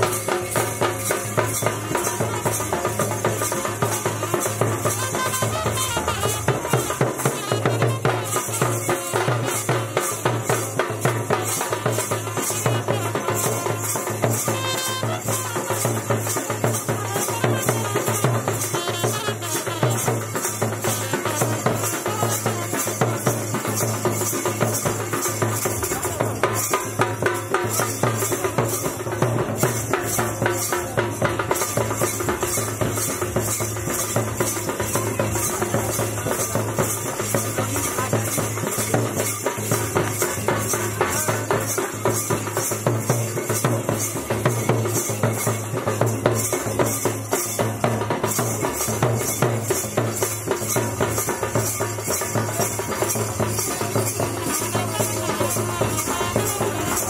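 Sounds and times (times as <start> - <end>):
drums: 0.0 - 57.0
trumpet melody: 1.5 - 10.3, 11.6 - 23.4, 54.2 - 57.0.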